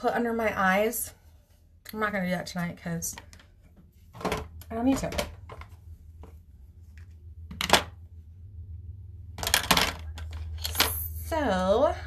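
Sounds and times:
makeup items clicking and knocking: 0:07.4 - 0:08.0, 0:09.3 - 0:11.0.

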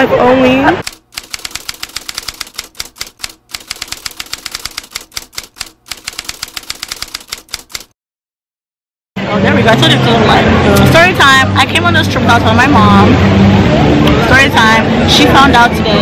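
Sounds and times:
typewriter keystroke clacks: 0:00.8 - 0:07.9.

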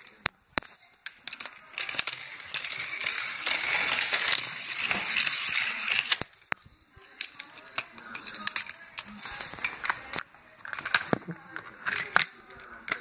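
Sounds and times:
toy cars rattling down plastic track: 0:00.0 - 0:13.0.

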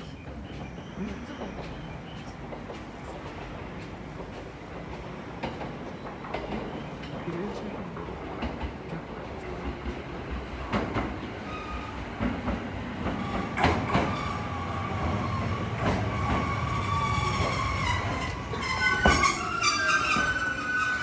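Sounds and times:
train brakes squealing: 0:11.2 - 0:12.4, 0:13.2 - 0:21.0.

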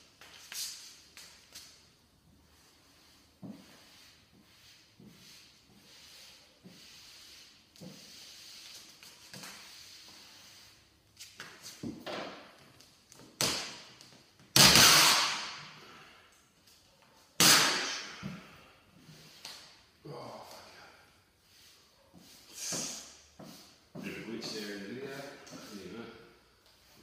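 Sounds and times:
quiet rubbing strokes: 0:02.3 - 0:11.0, 0:18.9 - 0:27.0.

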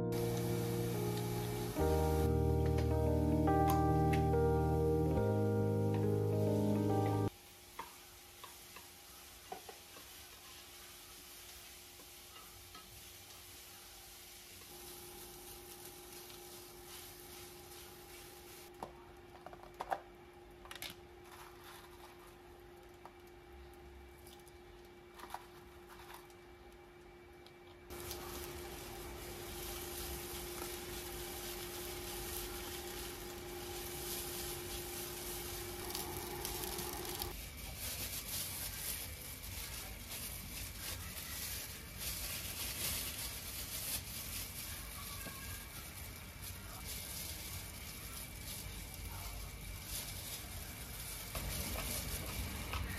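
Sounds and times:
plastic gloves rustling: 0:00.0 - 0:07.3, 0:09.8 - 0:18.7, 0:27.9 - 0:52.9
steady hum: 0:00.0 - 0:07.3, 0:27.9 - 0:37.3
rice sizzling in a pan: 0:00.0 - 0:18.8, 0:27.9 - 0:52.9
faint hum: 0:23.2 - 0:37.3.

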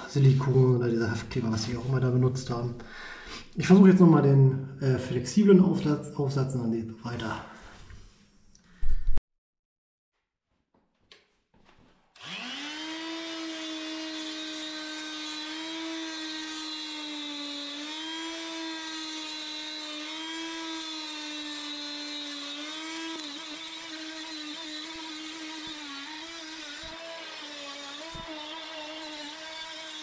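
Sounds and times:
blade scraping glue: 0:13.3 - 0:30.0.

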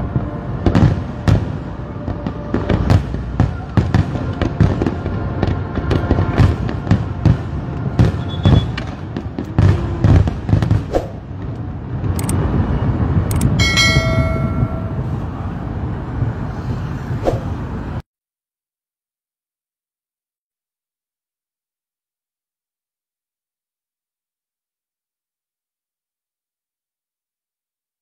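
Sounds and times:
fireworks bangs and crackles: 0:00.0 - 0:18.0
rumbling noise: 0:00.0 - 0:18.0
brief held tone: 0:13.3 - 0:15.2.

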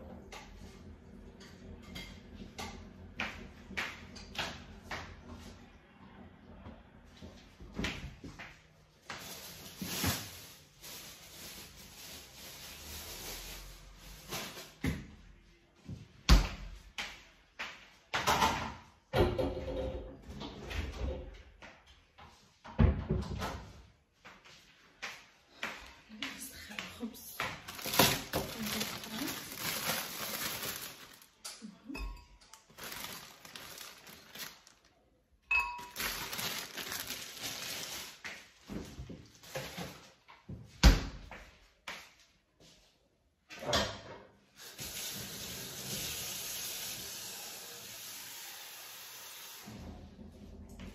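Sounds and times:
handling rustle: 0:27.6 - 0:31.4, 0:32.7 - 0:34.9, 0:35.8 - 0:38.2.

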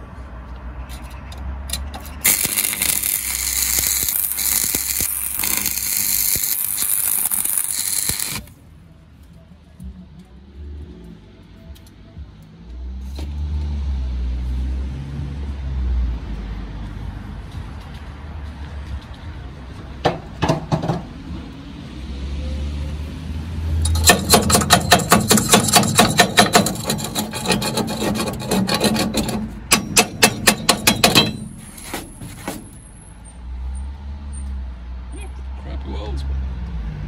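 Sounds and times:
hammer striking metal: 0:23.9 - 0:27.0, 0:29.0 - 0:32.7.

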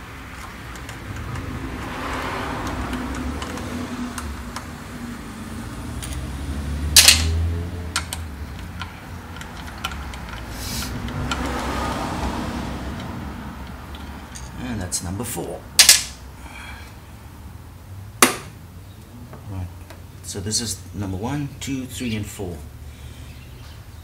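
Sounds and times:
hand tool clicking on bolts: 0:08.0 - 0:11.6, 0:15.8 - 0:16.2.

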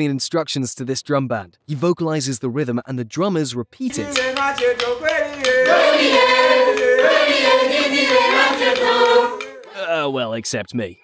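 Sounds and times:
drums struck with sticks: 0:03.9 - 0:09.7
crowd singing in unison: 0:03.9 - 0:09.8
leader singing: 0:03.9 - 0:09.8.

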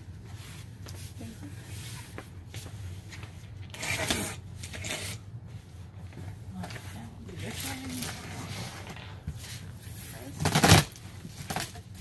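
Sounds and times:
steady low hum: 0:00.0 - 0:12.0
box cutter slicing tape: 0:03.7 - 0:05.2, 0:10.4 - 0:11.0
tearing rasp of tape: 0:03.7 - 0:05.2.

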